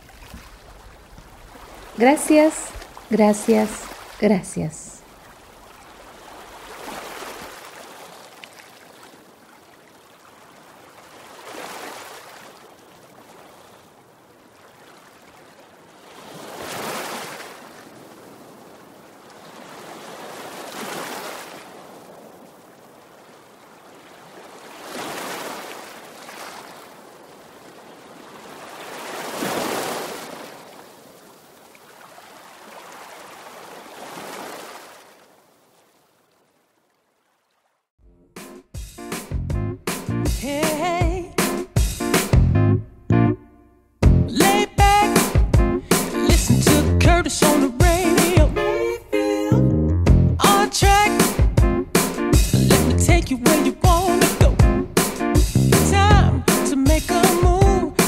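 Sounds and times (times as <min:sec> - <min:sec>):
ocean waves washing in: 0:00.0 - 0:36.8.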